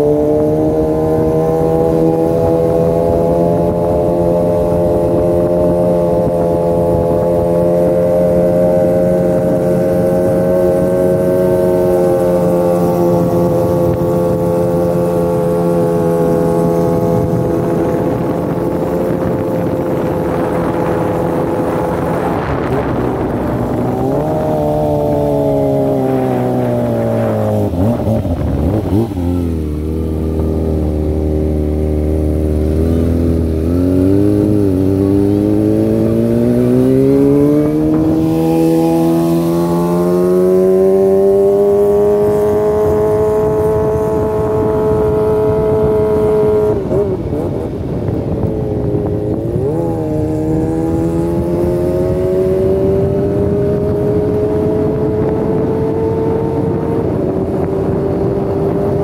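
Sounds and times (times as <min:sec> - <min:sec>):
motorcycle revving through gears: 0:00.0 - 0:59.0.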